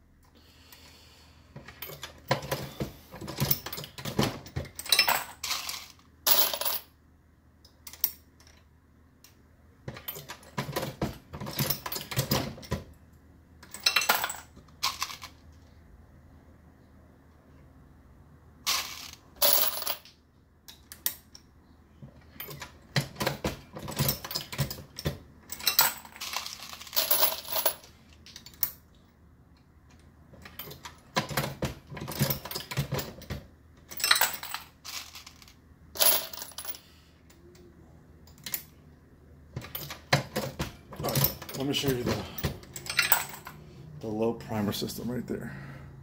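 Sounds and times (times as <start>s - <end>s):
metal cases clinking: 39.6s - 43.6s.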